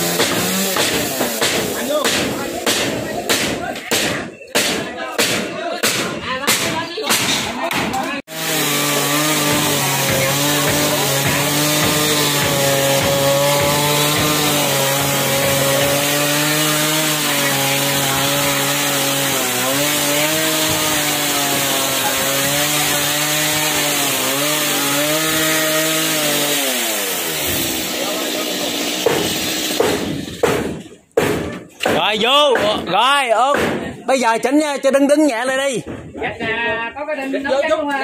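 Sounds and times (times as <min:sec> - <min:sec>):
chainsaw cutting timber: 0:00.0 - 0:03.0, 0:08.2 - 0:31.4.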